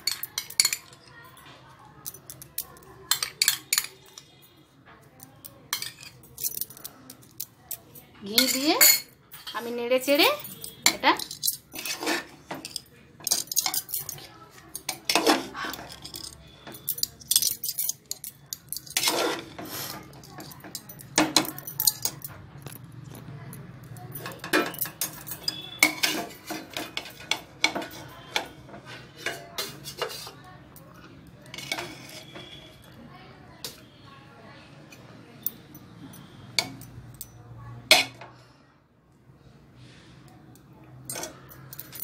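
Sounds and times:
metal spoon scraping a pot: 8.4 - 20.8, 24.2 - 30.4, 31.4 - 32.8.

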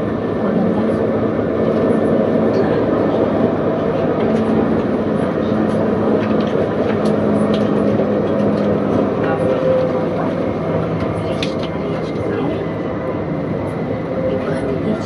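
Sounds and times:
light rail vehicle rumbling: 0.0 - 15.0.

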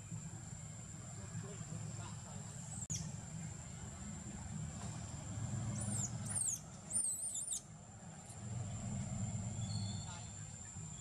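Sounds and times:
infant macaque squealing: 5.8 - 7.6.

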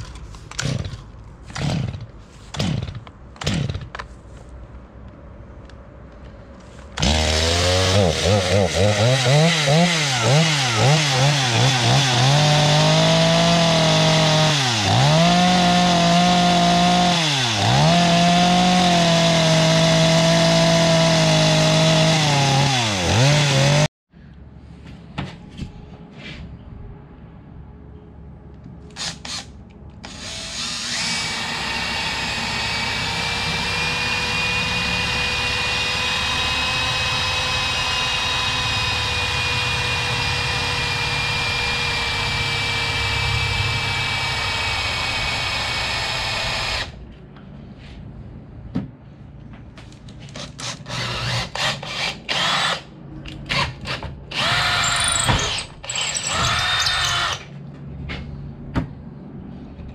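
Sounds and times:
power tool whining on hardwood: 54.4 - 57.4.

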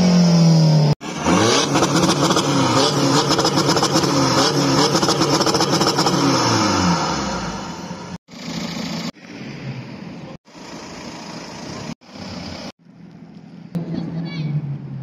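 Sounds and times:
car engine revving: 0.0 - 9.1.

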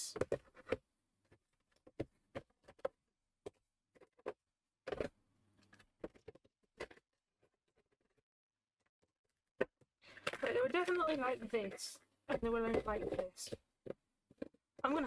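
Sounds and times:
plastic rubbing: 0.2 - 8.2, 12.3 - 14.6
plastic miniatures tapping on tray: 12.3 - 14.6.

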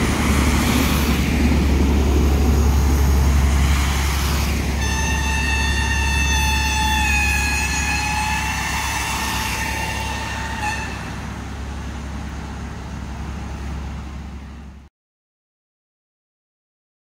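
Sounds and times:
train rumbling: 0.0 - 14.9
steam locomotive whistle: 4.8 - 11.2.

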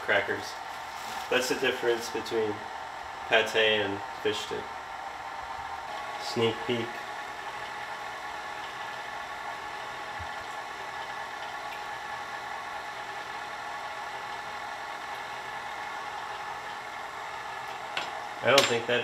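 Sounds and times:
machine hum: 0.0 - 19.0.

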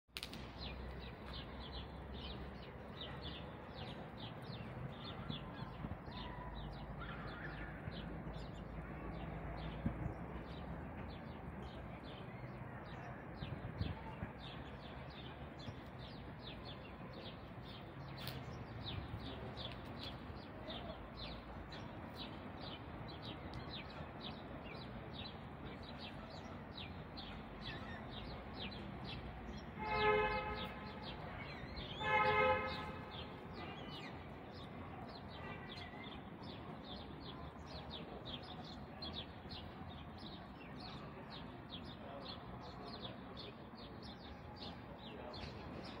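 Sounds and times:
loud honks: 29.8 - 31.1, 31.9 - 33.1.

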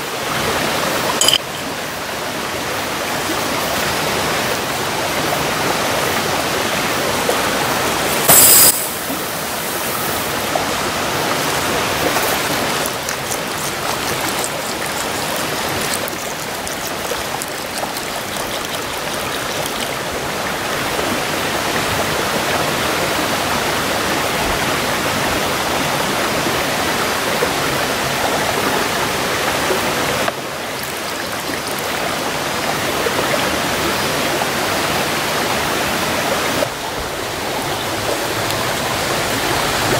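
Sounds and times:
stream water rushing: 0.0 - 39.9
water poured into rice in pan: 11.4 - 20.1, 30.8 - 32.0.

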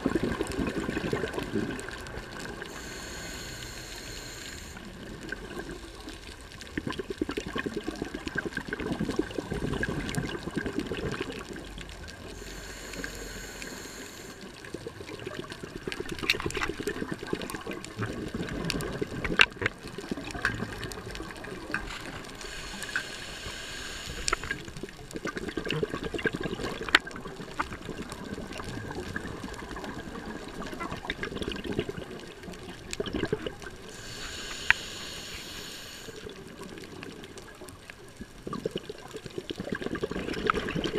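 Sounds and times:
gurgle of exhaled bubbles: 0.0 - 2.8, 4.7 - 12.4, 14.5 - 22.9, 24.2 - 34.7, 36.1 - 40.9
hissing inhale through regulator: 2.5 - 5.1, 12.2 - 14.8, 21.8 - 24.8, 33.8 - 36.8.

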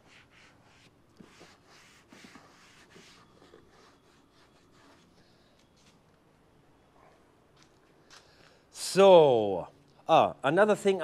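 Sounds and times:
faint rubbing and handling: 0.0 - 6.1.

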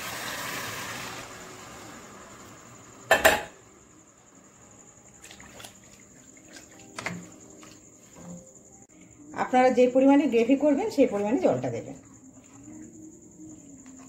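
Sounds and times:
liquid sloshing: 5.2 - 7.7.

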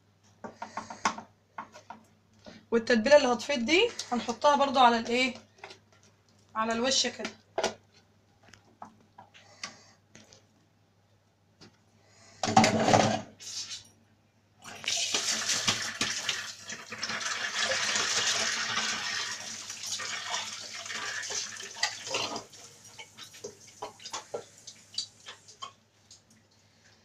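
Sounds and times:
running tap water: 14.6 - 26.1.

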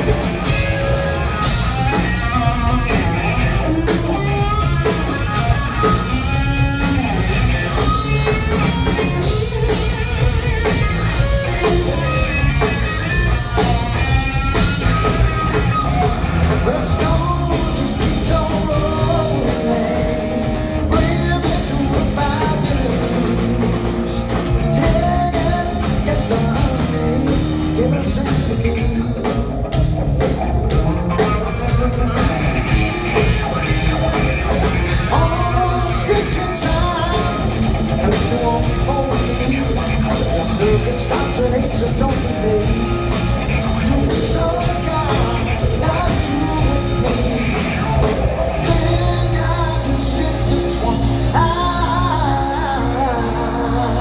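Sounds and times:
bass guitar: 0.0 - 54.0
drum kit: 0.0 - 54.0
electric guitar: 0.0 - 54.0
person singing: 16.0 - 29.7, 35.0 - 54.0.

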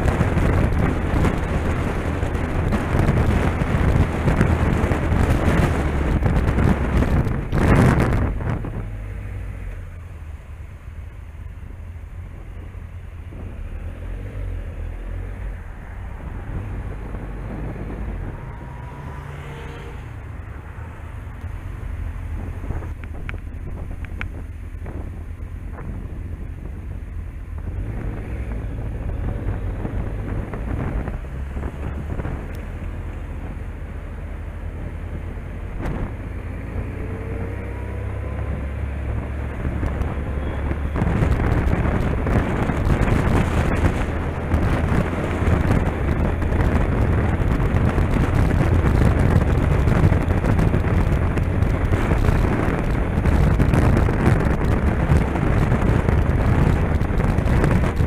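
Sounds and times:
wind rushing over microphone: 0.0 - 58.0
motorcycle engine: 16.2 - 58.0.

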